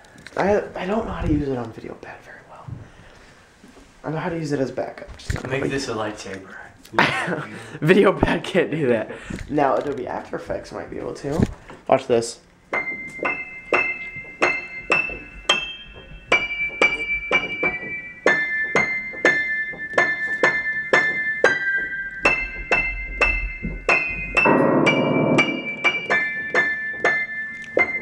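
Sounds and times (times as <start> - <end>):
piano notes high tune: 12.7 - 28.0.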